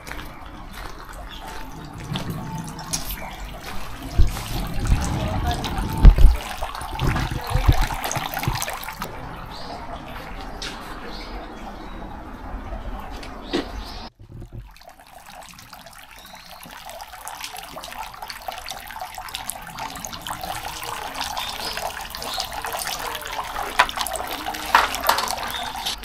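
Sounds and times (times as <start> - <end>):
water splashing and trickling: 0.0 - 26.0.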